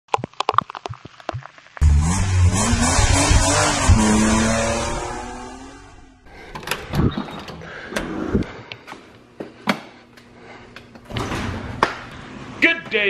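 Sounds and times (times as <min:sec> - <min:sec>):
engine rev sound effect: 0:01.8 - 0:06.2.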